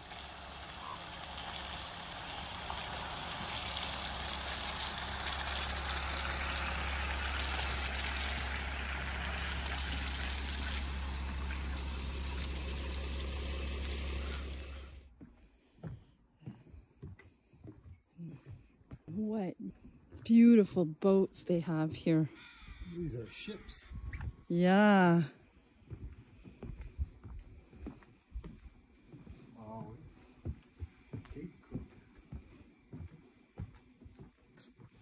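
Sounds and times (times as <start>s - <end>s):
rain hiss: 0.0s - 15.0s.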